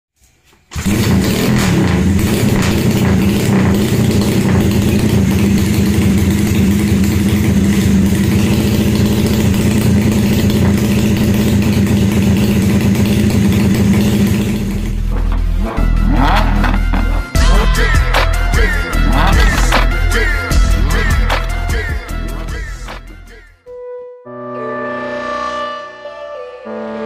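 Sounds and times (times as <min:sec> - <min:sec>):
motorcycle engine running: 0:00.7 - 0:21.8.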